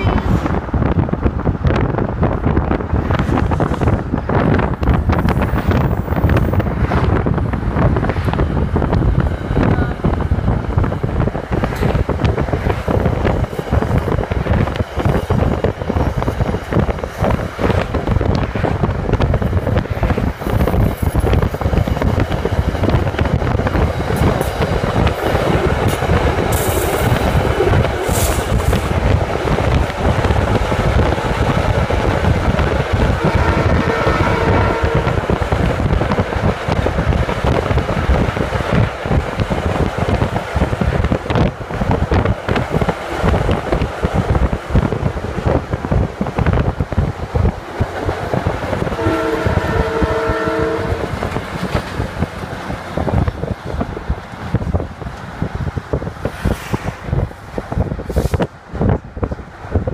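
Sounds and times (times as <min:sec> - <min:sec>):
car wind and road noise: 0:00.0 - 0:59.9
train rumble and wheel clatter: 0:00.0 - 0:59.9.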